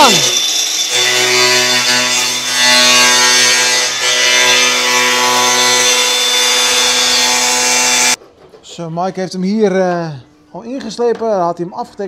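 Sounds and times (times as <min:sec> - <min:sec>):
angle grinder cutting steel: 0:00.0 - 0:08.2.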